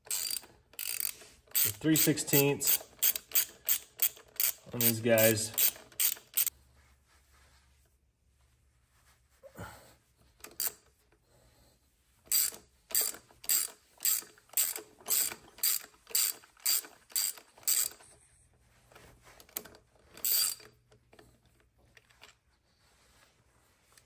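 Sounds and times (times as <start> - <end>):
hand ratchet clicking: 0.0 - 6.5, 10.4 - 10.8, 12.3 - 18.0, 19.5 - 20.8.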